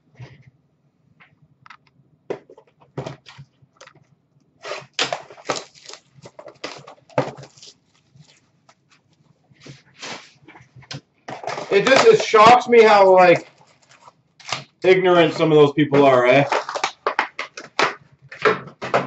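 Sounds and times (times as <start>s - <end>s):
wrapping crinkling: 4.6s - 10.6s, 11.5s - 18.4s.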